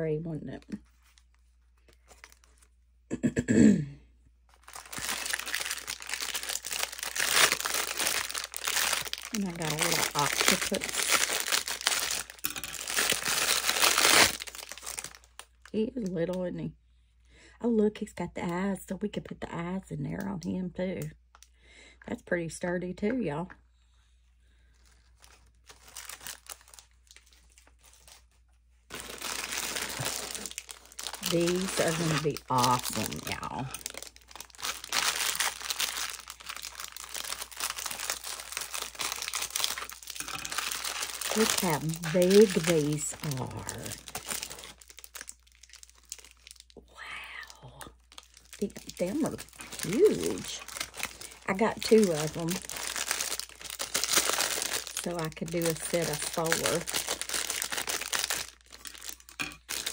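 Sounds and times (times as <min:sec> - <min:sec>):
plastic bag crinkling: 0:00.5 - 0:02.8, 0:04.5 - 0:16.1, 0:24.7 - 0:46.8, 0:48.0 - 0:59.9
person clearing throat: 0:03.1 - 0:04.0.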